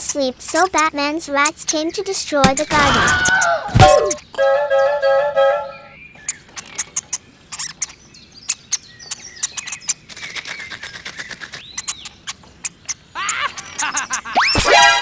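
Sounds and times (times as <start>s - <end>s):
high-pitched chirps and clicks: 6.2s - 14.7s.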